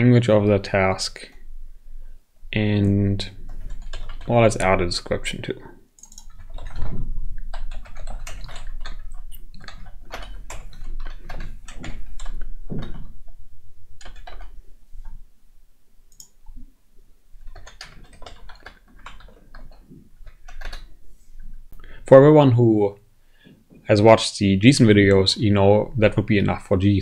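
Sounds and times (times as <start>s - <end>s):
computer keyboard typing: 3.3s - 5.3s, 6.0s - 13.3s, 14.0s - 15.2s, 16.1s - 16.6s, 17.4s - 20.9s.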